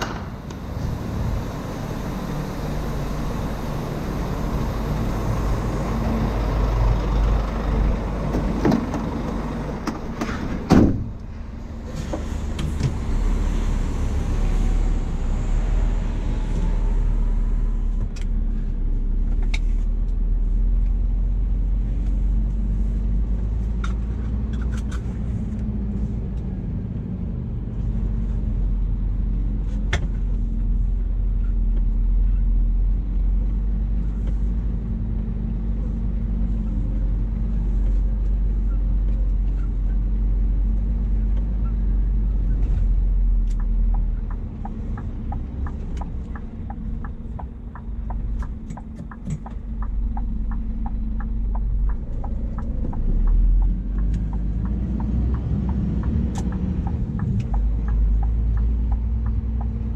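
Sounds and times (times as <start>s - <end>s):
diesel truck engine droning: 0.0s - 59.9s
loud thump: 10.6s - 11.2s.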